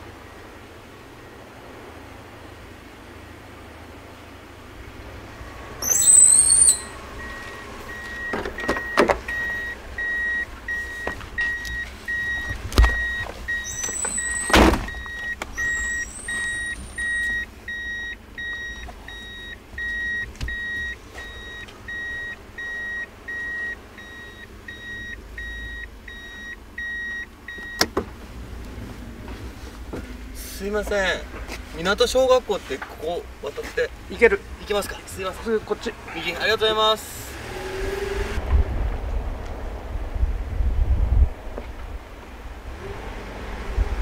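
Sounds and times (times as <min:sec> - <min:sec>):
car warning chime beeping: 0:05.3 - 0:28.0
high squeal: 0:05.8 - 0:07.7, 0:13.5 - 0:17.4
short high squeaks: 0:05.8 - 0:09.7, 0:10.7 - 0:17.4.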